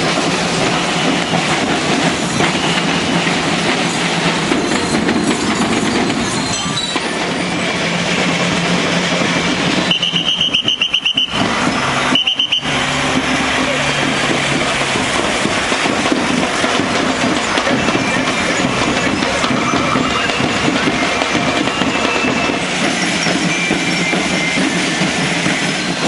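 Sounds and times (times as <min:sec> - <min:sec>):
marching band drums and cymbals: 0:00.0 - 0:26.0
high trilling whistle: 0:09.8 - 0:12.9, 0:17.8 - 0:26.0.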